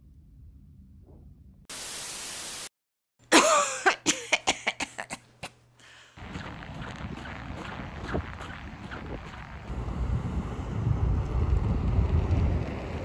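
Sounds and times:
person coughing: 3.3 - 5.6
wind noise on microphone: 6.2 - 13.0.

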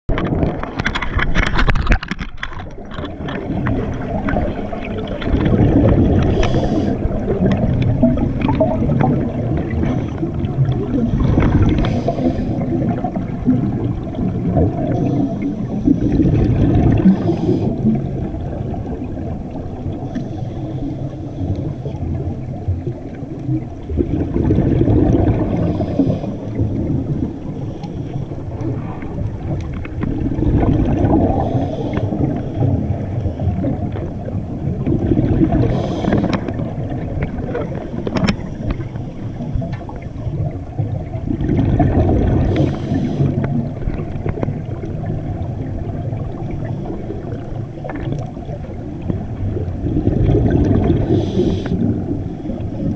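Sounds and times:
exhaled bubbles rumbling underwater: 0.1 - 52.9
regulator inhalation hiss: 42.5 - 43.4, 51.1 - 51.8.

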